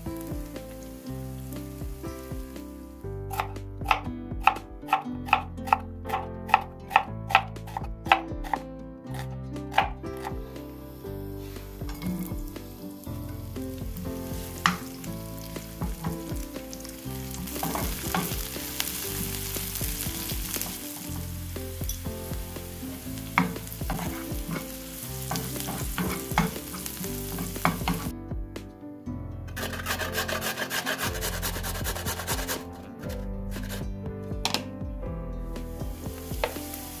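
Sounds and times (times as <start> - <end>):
onions sizzling in oil: 0.0 - 3.5, 7.7 - 28.1, 35.8 - 37.0
knife chopping on cutting board: 3.3 - 8.6
wooden spatula stirring in pan: 11.4 - 28.1, 29.6 - 33.8.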